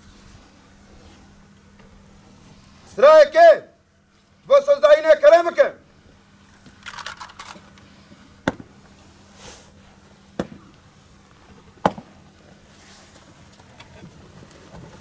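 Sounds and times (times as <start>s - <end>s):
rifles clattering: 6.5s - 7.9s
sharp rifle clacks: 6.8s - 7.8s.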